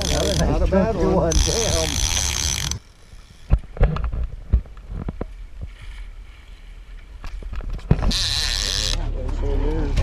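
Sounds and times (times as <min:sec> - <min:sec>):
water splashing and sloshing: 0:01.4 - 0:08.4.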